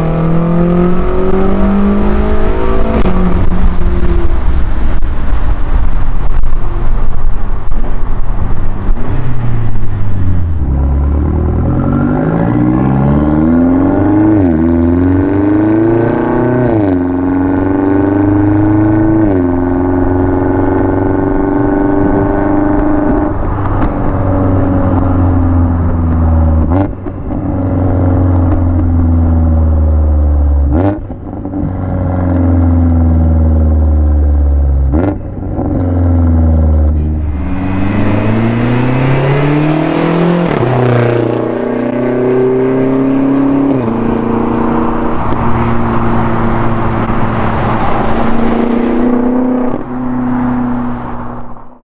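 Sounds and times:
wind and road rush: 0:00.0 - 0:51.8
car exhaust drone: 0:17.0 - 0:51.8.

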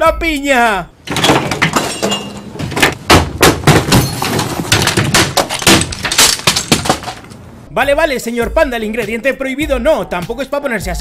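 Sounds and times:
objects crashing and banging: 0:01.0 - 0:07.4.

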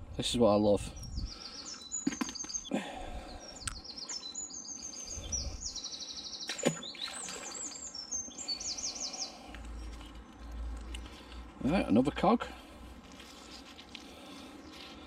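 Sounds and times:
songbirds chirping: 0:00.2 - 0:15.0.

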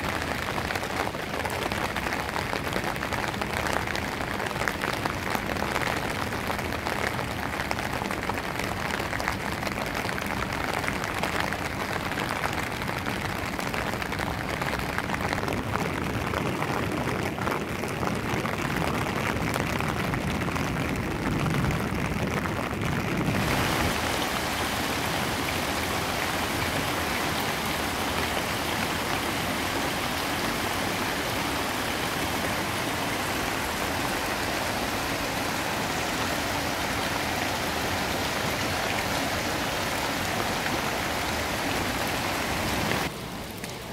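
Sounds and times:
water gushing from sluice gate: 0:00.0 - 0:20.5, 0:23.2 - 0:43.1
rain falling on water: 0:00.0 - 0:43.9.

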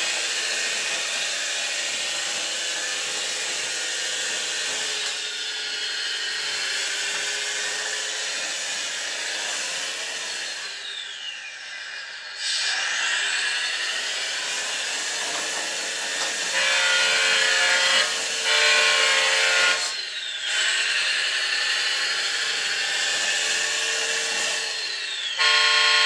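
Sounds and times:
horn blaring: 0:25.4 - 0:26.0.

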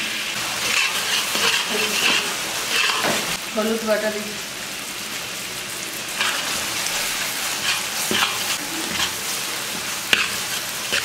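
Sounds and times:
masala sizzling in oil: 0:00.0 - 0:11.0
spatula scraping pan: 0:00.4 - 0:03.4, 0:06.2 - 0:11.0.

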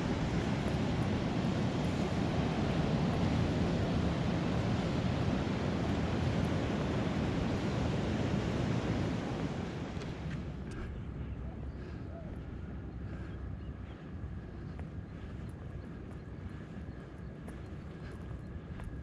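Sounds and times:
ocean surf breaking: 0:00.0 - 0:10.2
wind on microphone: 0:00.0 - 0:19.0.

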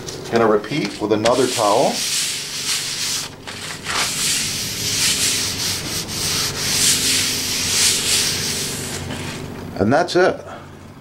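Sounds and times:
paper towel rubbing on wooden board: 0:01.0 - 0:09.5.

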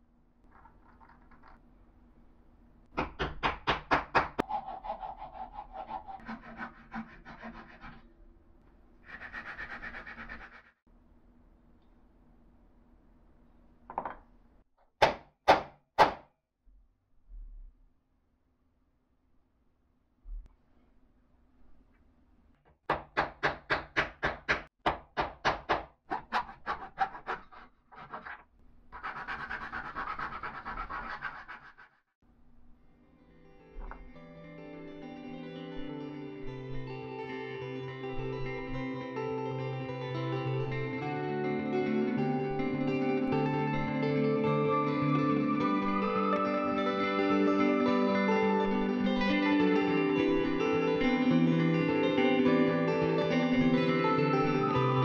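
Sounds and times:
hand saw cutting wood: 0:04.1 - 0:08.1, 0:09.0 - 0:10.7, 0:26.1 - 0:28.4, 0:29.0 - 0:32.0
sanding pad rasping on wood: 0:04.4 - 0:08.0, 0:09.0 - 0:10.7, 0:29.0 - 0:32.0
wooden mallet knocking dowel: 0:13.9 - 0:14.2.

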